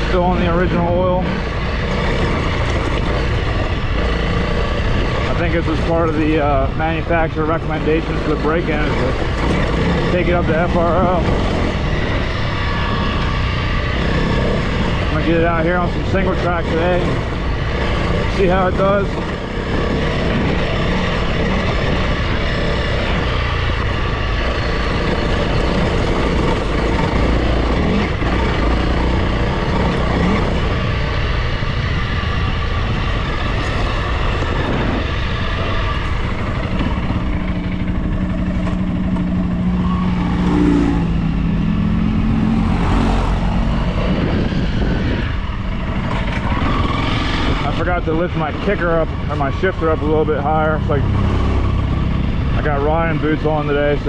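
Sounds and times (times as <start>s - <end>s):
motorcycle engine running: 0.0s - 54.0s
wind and road noise: 0.0s - 54.0s.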